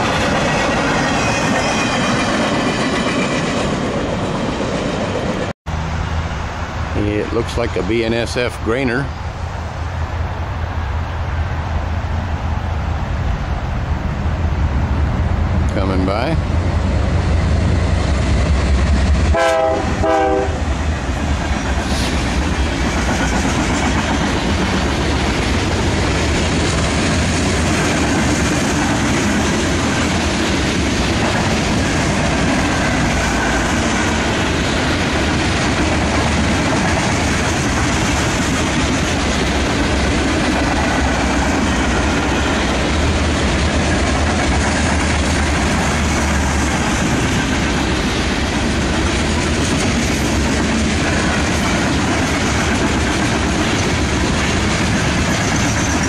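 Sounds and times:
diesel locomotives passing: 0.0s - 56.0s
freight cars rolling by: 0.0s - 56.0s
locomotive horn blast: 19.3s - 20.7s.

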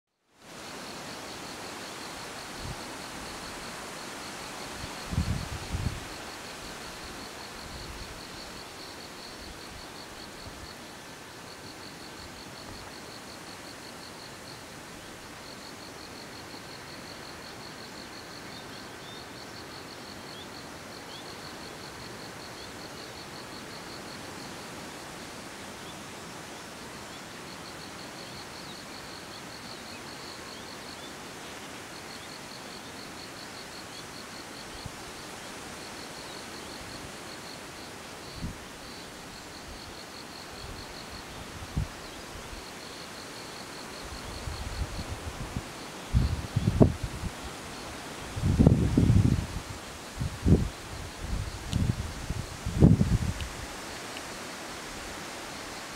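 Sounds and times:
steady hiss: 0.3s - 55.9s
wind bumping on microphone: 4.8s - 6.1s, 44.3s - 47.4s, 48.3s - 53.8s.

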